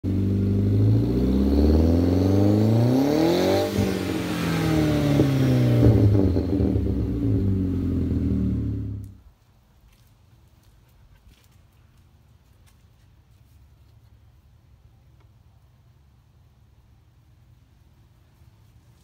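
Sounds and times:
car engine revving: 0.0 - 9.2
exhaust cracks: 0.0 - 9.2.

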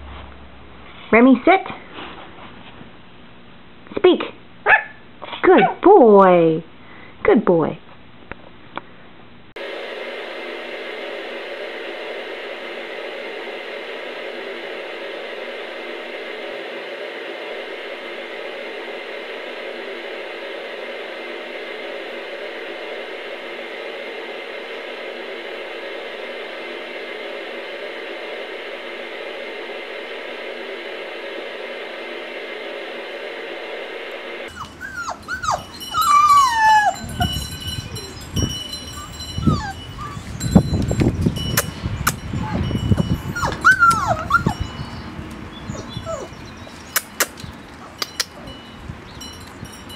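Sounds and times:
puppies whimpering: 34.5 - 40.5, 43.3 - 44.8, 45.6 - 48.6.

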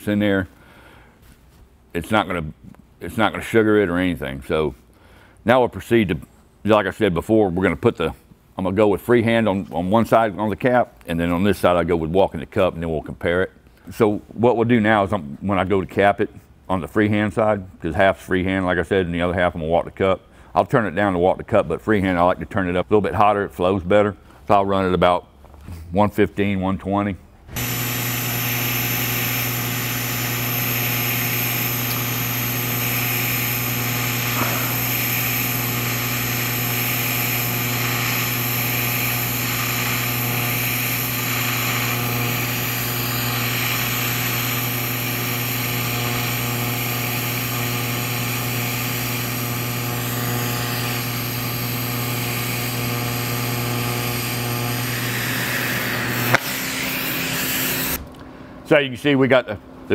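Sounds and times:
welding arc humming and hissing: 27.6 - 58.1.

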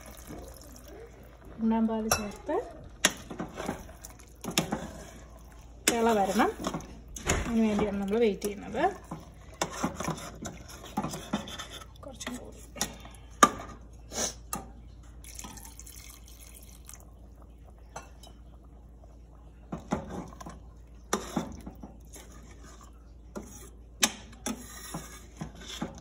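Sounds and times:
liquid pouring into stew: 0.0 - 1.6, 2.9 - 5.9, 15.1 - 23.3.

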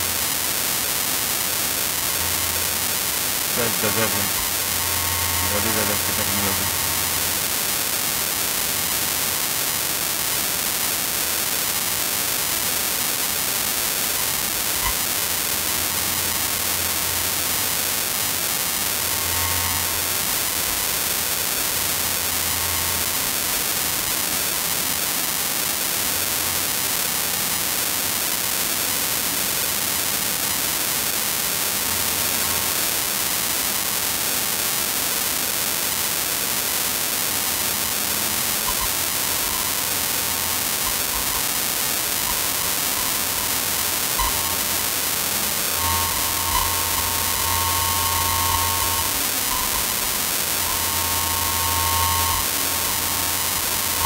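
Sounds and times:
steady hiss: 0.0 - 9.4, 36.7 - 54.0.

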